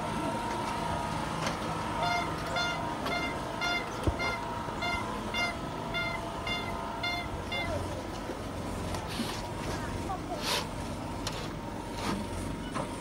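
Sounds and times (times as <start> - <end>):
street noise: 0.0 - 13.0
vehicle electronic beeper: 2.0 - 7.8.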